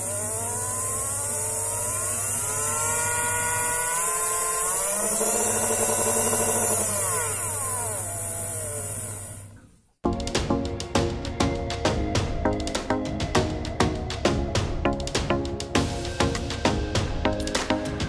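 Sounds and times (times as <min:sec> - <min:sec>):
small motors whining: 0:00.0 - 0:09.9
background music with a beat: 0:10.0 - 0:18.0.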